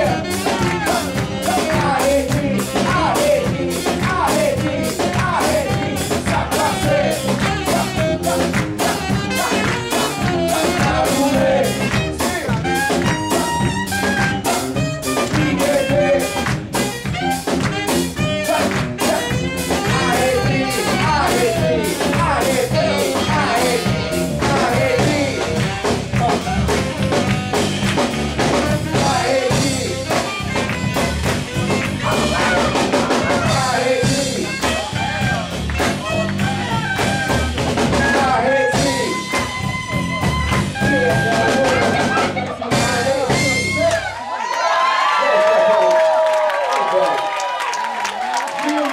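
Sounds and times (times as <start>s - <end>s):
people singing into microphones: 0.0s - 12.3s, 14.3s - 16.8s, 18.2s - 26.7s, 28.4s - 30.4s, 31.9s - 35.9s, 37.7s - 43.9s
bass guitar: 0.0s - 44.2s
drum kit beat: 0.0s - 44.2s
tenor saxophone: 0.0s - 44.3s.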